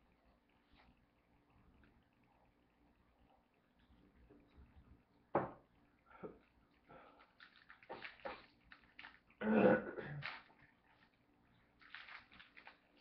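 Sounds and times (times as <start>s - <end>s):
cards shuffling: 7.2s - 9.3s, 10.2s - 11.1s, 11.8s - 13.0s.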